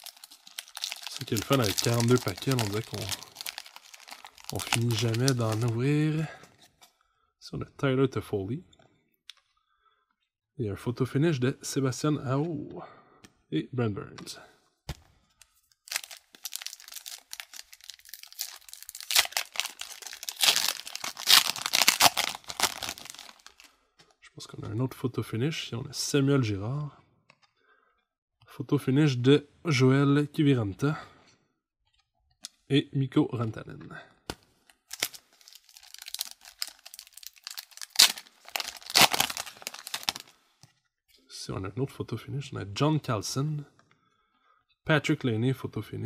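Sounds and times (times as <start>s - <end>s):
card pack wrapper crinkling and tearing: 0.0s - 5.9s, 15.8s - 23.7s, 34.8s - 40.4s.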